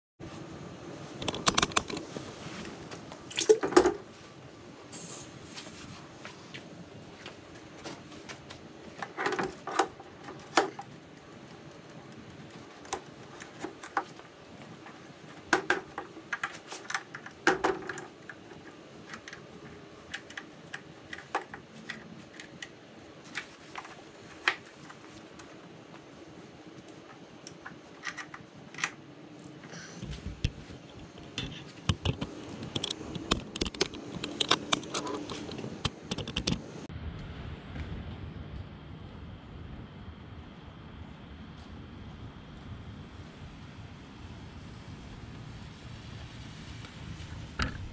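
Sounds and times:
light clicks and knocks from handling: 6.5 - 36.6.

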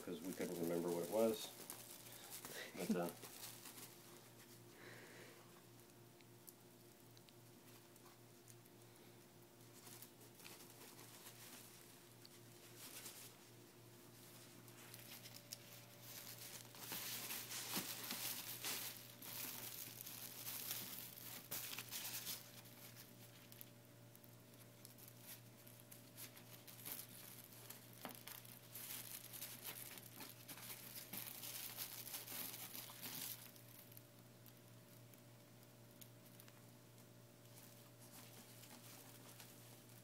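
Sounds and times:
fabric crinkling and rustling: 0.0 - 4.6, 14.1 - 23.7, 24.5 - 34.0.

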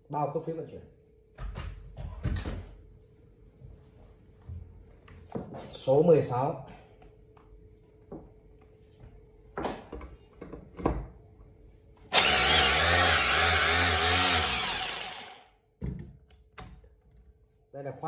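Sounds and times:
rotary hammer motor running: 12.1 - 15.5.

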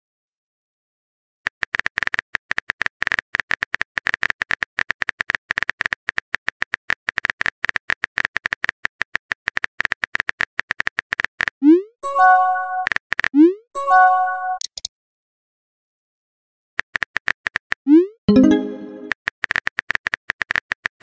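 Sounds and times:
phone keyboard clicking: 1.5 - 11.5.

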